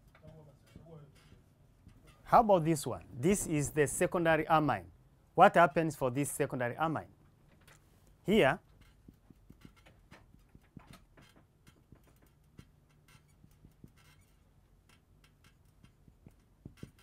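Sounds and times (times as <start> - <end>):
marker writing on whiteboard: 8.9 - 14.5, 15.3 - 17.0.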